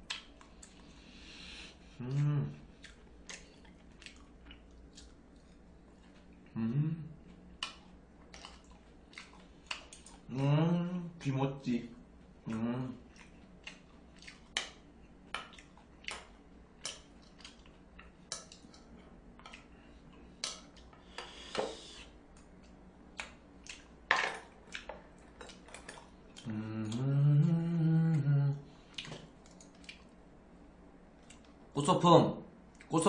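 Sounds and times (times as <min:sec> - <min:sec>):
man humming: 0:02.0 - 0:02.7, 0:06.5 - 0:07.2, 0:10.3 - 0:11.2, 0:12.5 - 0:13.0, 0:26.4 - 0:28.7.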